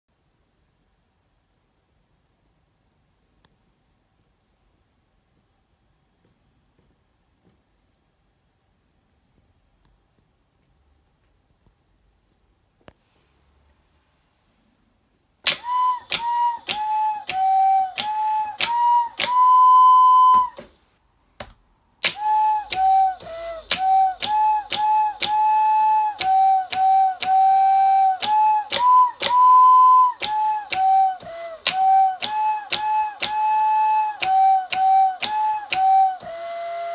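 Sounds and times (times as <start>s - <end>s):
recorder playing tune: 15.5s - 20.7s, 22.0s - 36.9s.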